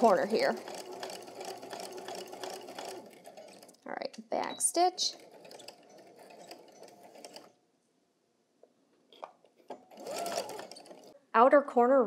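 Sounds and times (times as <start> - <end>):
electric sewing machine stitching: 0.0 - 7.6, 9.2 - 11.2.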